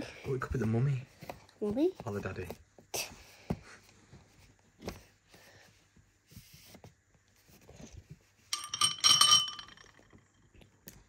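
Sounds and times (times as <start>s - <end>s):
metal spoon clinking on dish: 8.5s - 10.0s.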